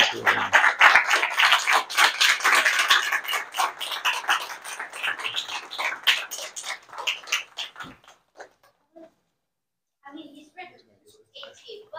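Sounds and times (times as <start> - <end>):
audience applause: 0.0 - 8.4.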